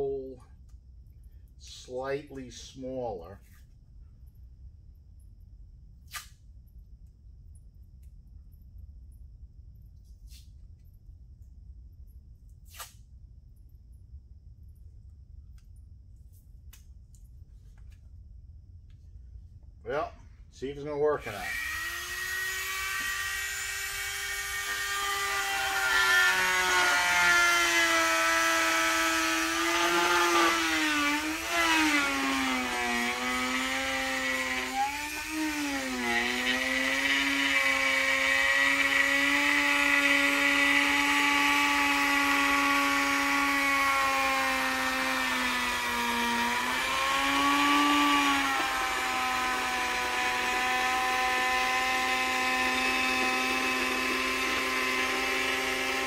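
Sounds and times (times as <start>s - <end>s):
rotary tool whining: 21.2s - 56.0s.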